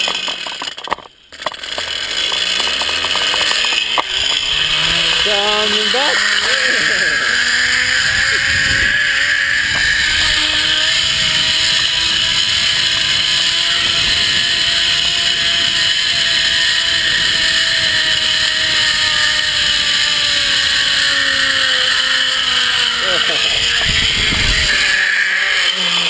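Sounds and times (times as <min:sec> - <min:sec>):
zip line pulley whine: 0:00.0 - 0:26.0
wind rushing on microphone: 0:07.7 - 0:18.4, 0:23.5 - 0:25.0.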